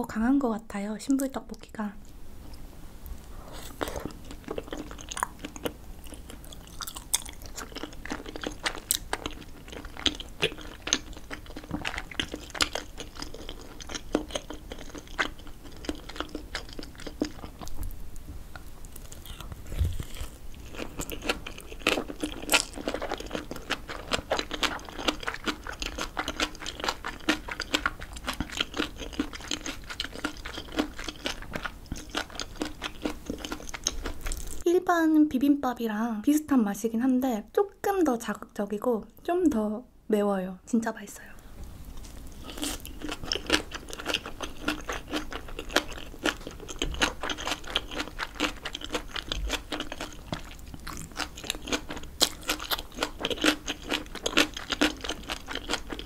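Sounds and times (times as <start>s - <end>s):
chewing with mouth clicks: 3.6s - 17.9s, 18.6s - 34.6s, 42.0s - 56.0s.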